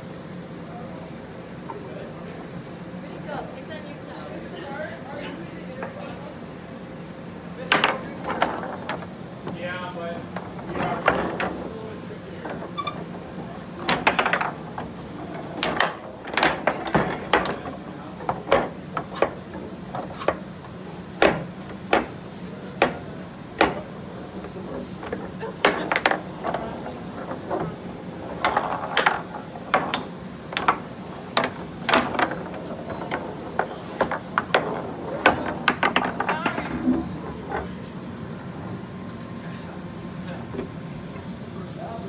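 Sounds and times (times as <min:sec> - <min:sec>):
foosball clacks and knocks: 0:07.6 - 0:09.6, 0:10.3 - 0:37.7.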